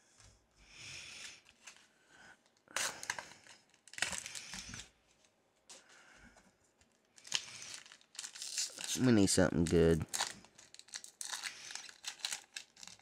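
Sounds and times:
foil wrappers crinkling and tearing: 0:02.5 - 0:04.9, 0:07.2 - 0:13.0.

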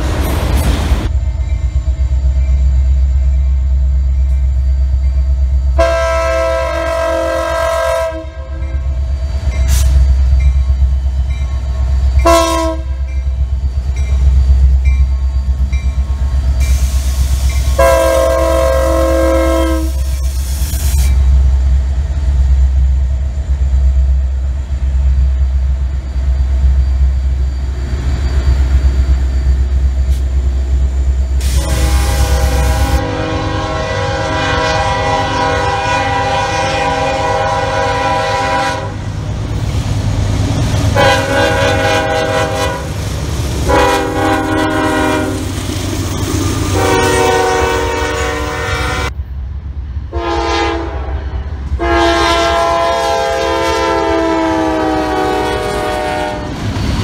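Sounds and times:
low train rumble: 0:00.0 - 0:57.0
locomotive air horn blasts: 0:05.8 - 0:08.8, 0:12.2 - 0:13.1, 0:17.7 - 0:20.1, 0:31.4 - 0:39.1, 0:40.9 - 0:43.0, 0:43.6 - 0:45.5, 0:46.7 - 0:49.2, 0:50.1 - 0:56.6.

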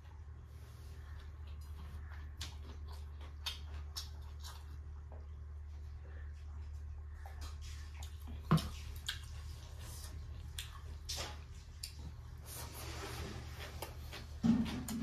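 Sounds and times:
chewing: 0:00.0 - 0:15.0
low steady hum: 0:00.0 - 0:15.0
fingers squishing wet food: 0:01.0 - 0:05.6, 0:06.4 - 0:12.4.

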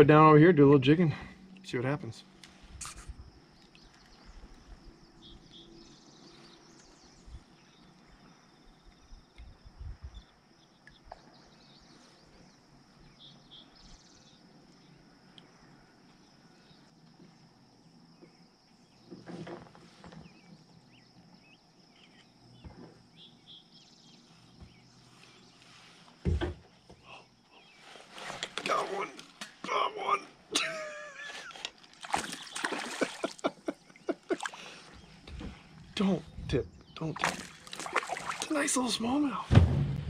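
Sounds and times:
soft bumps and knocks: 0:26.2 - 0:27.0, 0:39.5 - 0:40.0.

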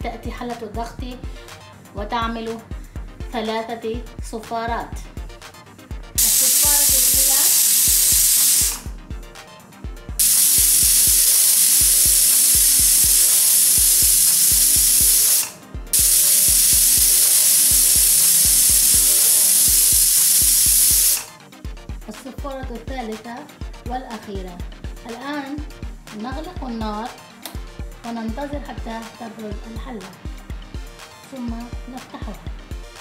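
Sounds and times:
pressure cooker steam whistling: 0:06.2 - 0:08.9, 0:10.2 - 0:21.3.

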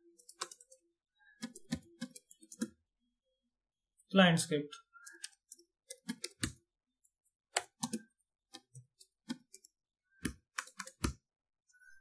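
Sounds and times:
computer keyboard typing: 0:00.0 - 0:00.8, 0:01.4 - 0:02.7, 0:05.0 - 0:06.5, 0:07.6 - 0:11.1.

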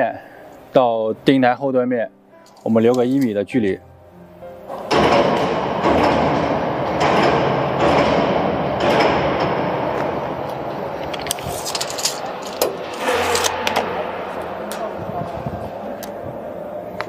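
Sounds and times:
overhead crane running: 0:04.8 - 0:17.0.

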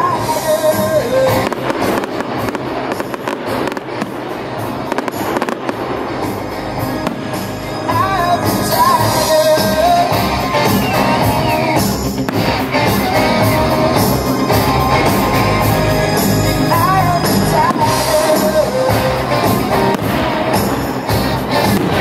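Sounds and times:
rock music with singing: 0:00.0 - 0:22.0
firework bang: 0:01.3 - 0:09.2, 0:19.6 - 0:22.0.

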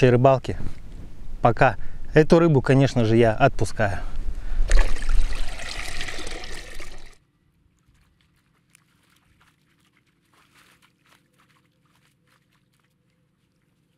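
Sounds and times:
water splashing and trickling: 0:04.6 - 0:07.2, 0:07.9 - 0:13.9.

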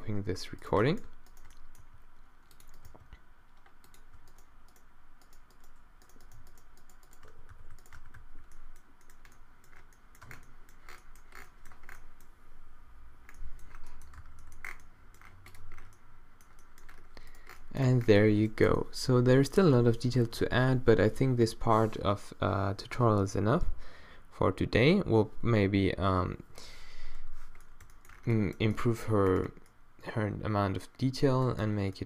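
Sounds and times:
keyboard keys clicking: 0:02.5 - 0:10.5.

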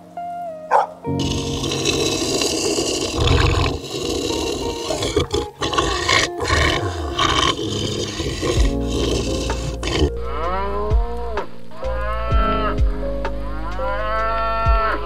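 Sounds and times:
dog growling: 0:01.1 - 0:11.1.

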